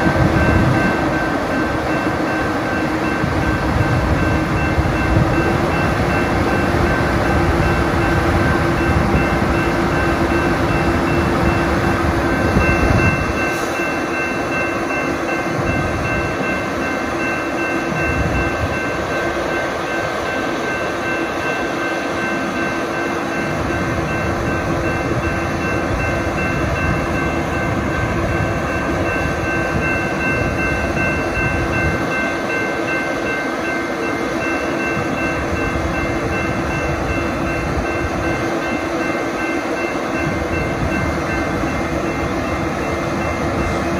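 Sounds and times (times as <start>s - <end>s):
crossing warning bell ringing: 0.0s - 43.9s.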